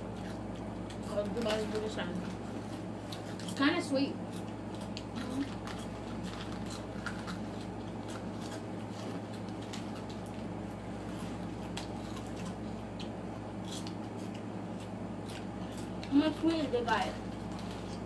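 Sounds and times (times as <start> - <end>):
low room hum: 0.0 - 18.0
snacks crunched and chewed: 0.0 - 18.0
snack packets crinkling: 4.5 - 10.6.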